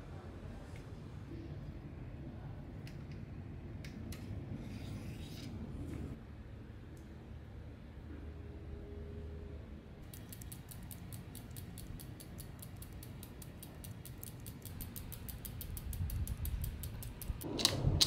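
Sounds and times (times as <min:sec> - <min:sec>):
bicycle freewheel ticking: 0:10.0 - 0:17.5.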